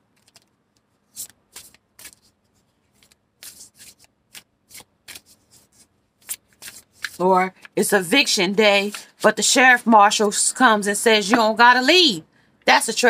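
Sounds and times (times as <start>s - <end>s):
cards being shuffled: 0.1s - 7.8s, 8.7s - 9.3s.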